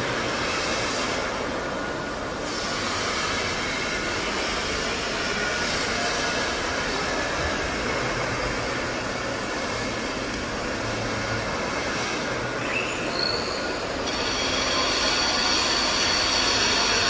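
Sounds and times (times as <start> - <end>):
fabrication shop rumble and hiss: 0.0 - 17.0.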